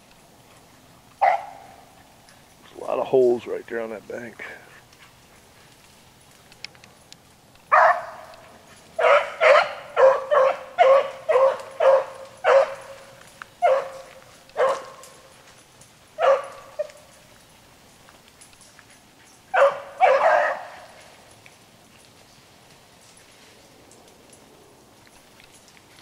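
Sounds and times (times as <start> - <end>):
dog barking: 1.2 - 1.8, 7.7 - 15.0, 16.2 - 17.0, 19.5 - 21.0.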